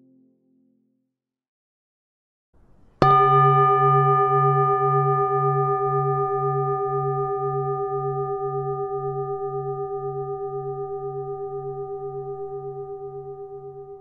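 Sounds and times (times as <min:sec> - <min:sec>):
singing bowl ringing: 0:03.0 - 0:14.0.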